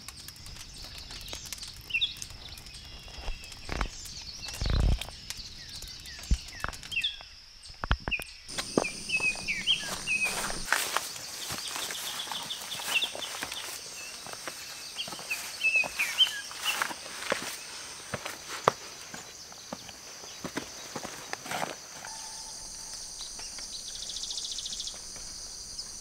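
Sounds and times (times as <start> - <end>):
small birds chirping: 0.0 - 21.4, 22.1 - 26.0
footsteps on rocks: 8.5 - 21.9.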